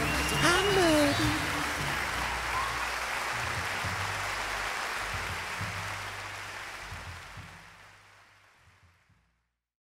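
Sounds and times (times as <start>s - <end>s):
audience applause: 0.0s - 8.7s
low bass notes of music: 0.0s - 9.4s.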